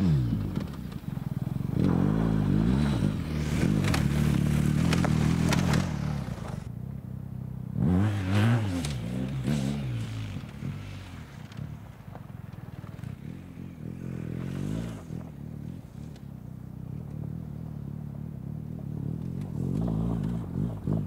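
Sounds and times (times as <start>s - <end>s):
motorcycle engine revving: 0.0s - 21.0s
tyres scraping on loose dirt and stones: 0.4s - 6.7s.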